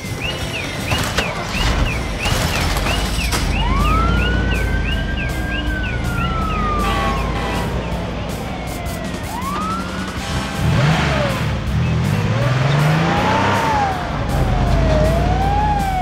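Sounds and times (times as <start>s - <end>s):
low rumble: 1.7s - 10.5s
toy siren wailing: 2.9s - 10.2s, 13.6s - 16.0s
rising and falling tone: 3.3s - 16.0s.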